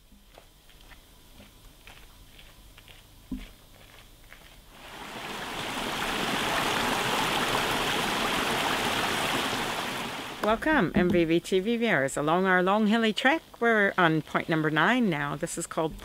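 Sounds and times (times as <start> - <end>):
stream rushing over rocks: 4.7 - 10.4.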